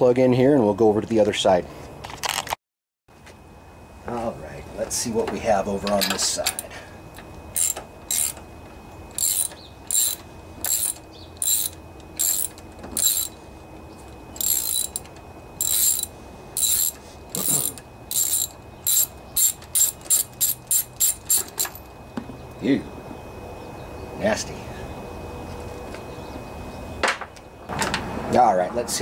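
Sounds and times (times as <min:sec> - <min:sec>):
socket ratchet clicking: 0:07.6 - 0:08.4, 0:09.1 - 0:13.4, 0:14.4 - 0:21.9.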